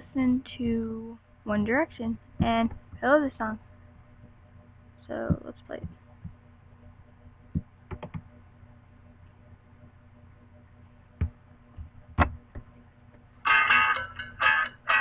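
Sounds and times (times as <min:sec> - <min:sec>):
faint steady hum: 0:00.0 - 0:15.0
keyboard and mouse clicks: 0:07.5 - 0:08.3.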